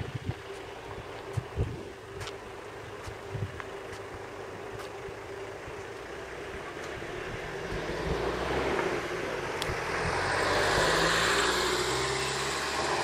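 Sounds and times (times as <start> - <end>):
car driving past: 6.1 - 13.0.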